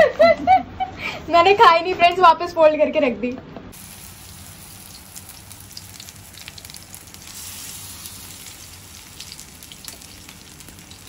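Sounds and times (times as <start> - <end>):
fish frying in oil: 3.8 - 11.0.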